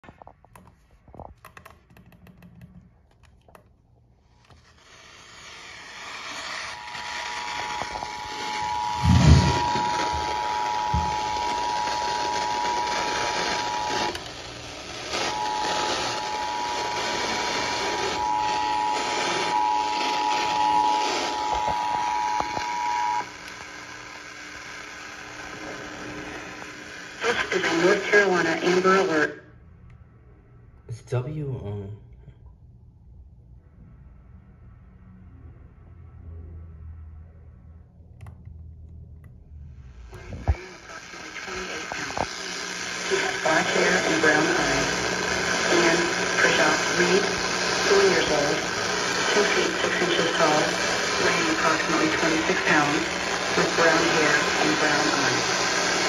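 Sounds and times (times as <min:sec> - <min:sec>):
radio hiss: 0:06.8 - 0:29.4, 0:40.0 - 0:56.0
two-tone alert signal: 0:07.0 - 0:14.2.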